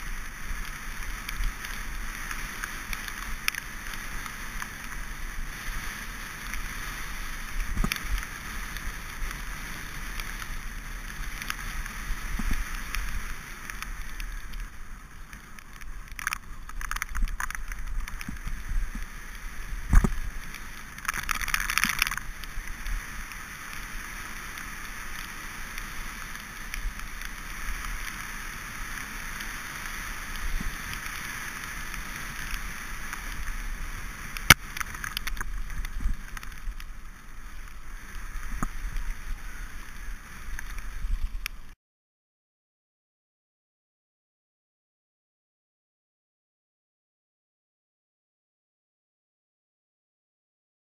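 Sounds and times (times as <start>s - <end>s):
bike tyres hissing through mud: 0.0s - 41.8s
wind on microphone: 0.0s - 41.8s
bike knocking on bumps: 7.6s - 8.4s, 19.8s - 22.2s.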